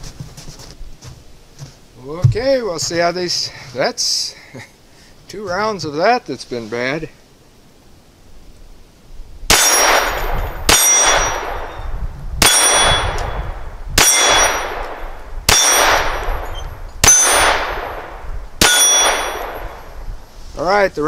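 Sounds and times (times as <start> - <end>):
pistol shots: 9.5 - 11.8, 14.0 - 19.8
steel target plate ringing: 9.5 - 14.8, 15.5 - 17.7, 18.6 - 19.8.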